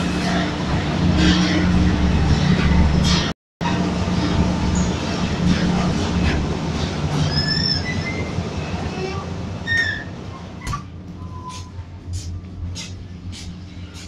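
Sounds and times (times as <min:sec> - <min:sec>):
asphalt plant rumble and hum: 0:00.0 - 0:14.0
high metallic squeals: 0:06.8 - 0:11.8.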